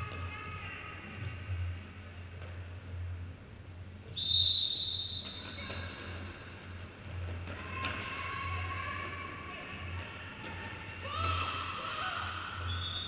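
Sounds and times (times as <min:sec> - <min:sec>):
low steady hum: 0:00.0 - 0:13.0
referee's whistle blast: 0:04.2 - 0:05.4.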